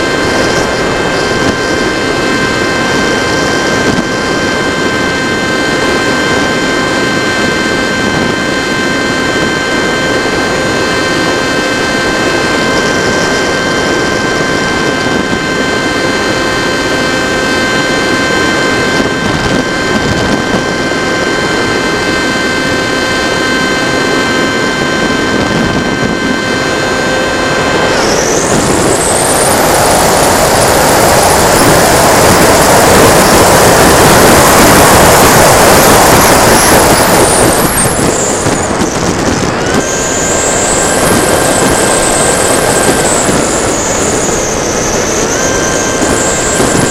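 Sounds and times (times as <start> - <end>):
electric motor whine: 0.0 - 46.9
rush of air: 0.0 - 46.9.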